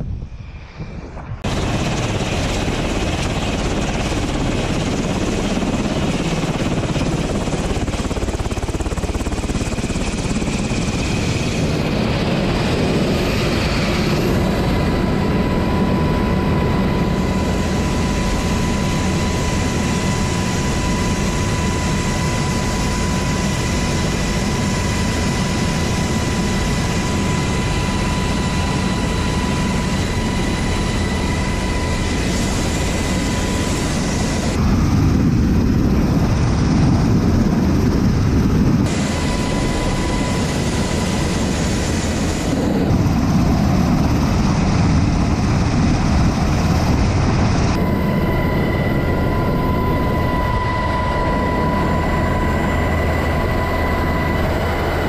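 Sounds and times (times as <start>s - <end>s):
helicopter rotor and engine noise: 0.0s - 55.0s
high turbine whine: 0.0s - 55.0s.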